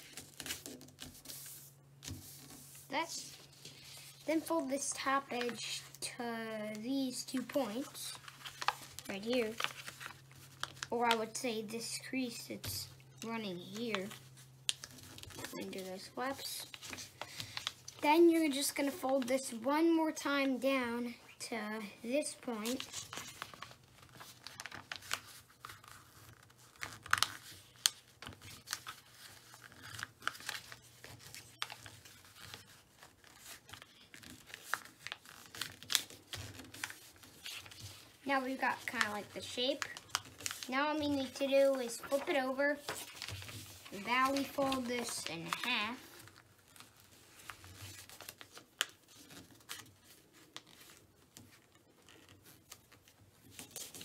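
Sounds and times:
paper rustling and crinkling: 0.0 - 6.0, 6.7 - 19.6, 22.3 - 54.0
paper fold ticks: 6.7 - 11.4.

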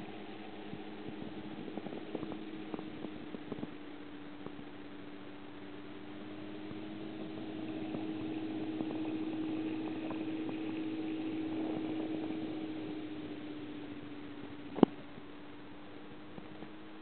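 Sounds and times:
aquarium pumps humming: 0.0 - 17.0
moving water: 0.0 - 17.0.

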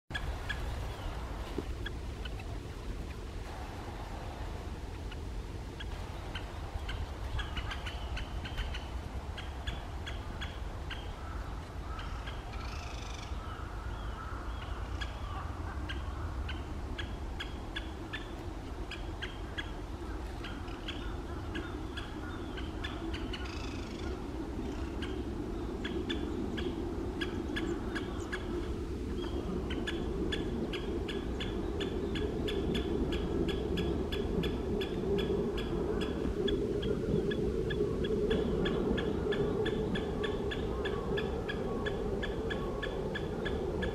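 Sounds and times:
low rumble: 0.1 - 43.9
woodpecker kik calls: 4.9 - 13.4
bird singing: 5.0 - 43.9.

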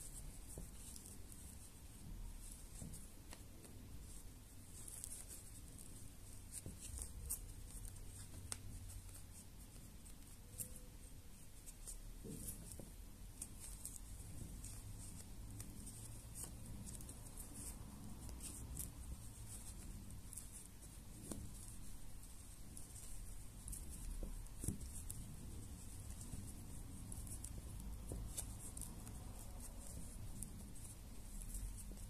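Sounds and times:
crochet hook scratching yarn: 0.0 - 32.0.

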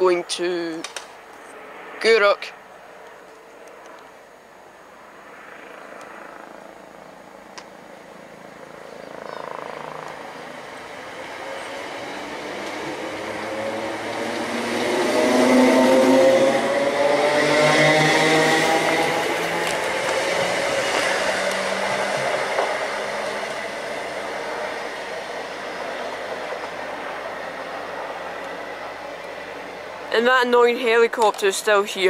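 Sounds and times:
electric train accelerating past: 1.2 - 3.2, 4.0 - 31.0.

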